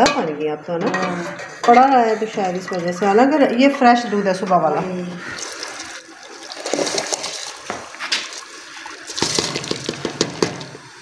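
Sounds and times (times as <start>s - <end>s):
rice and water pouring into pot: 5.2s - 11.0s.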